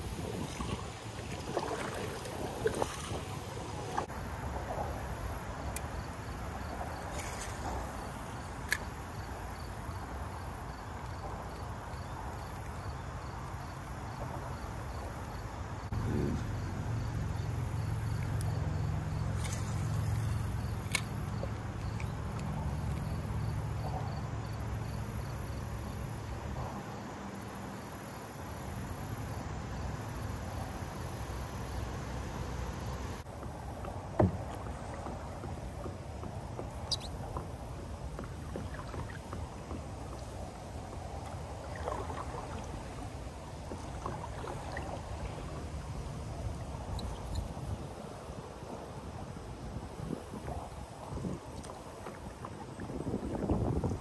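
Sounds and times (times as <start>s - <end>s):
water lapping against kayak hull: 0.0s - 54.0s
knocks on boat: 33.3s - 37.6s.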